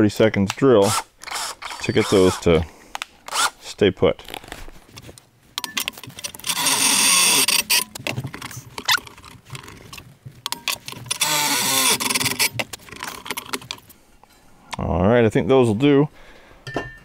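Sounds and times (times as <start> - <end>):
cordless drill drilling metal: 0.8 - 2.6, 3.3 - 3.6, 6.3 - 8.0, 11.1 - 13.3
handling clicks and knocks: 4.3 - 6.7, 7.4 - 14.0.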